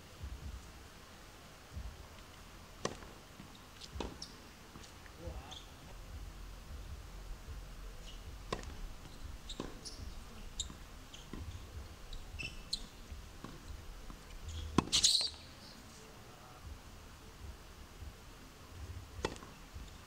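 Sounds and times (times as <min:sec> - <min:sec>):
tennis ball bounces: 0:02.8 - 0:04.9, 0:08.5 - 0:11.6, 0:12.4 - 0:15.4, 0:19.2 - 0:19.6
tennis racket strikes: 0:02.8 - 0:05.0, 0:08.4 - 0:11.6, 0:14.5 - 0:15.4, 0:19.2 - 0:19.6
shoes scuffing on court: 0:02.8 - 0:05.7.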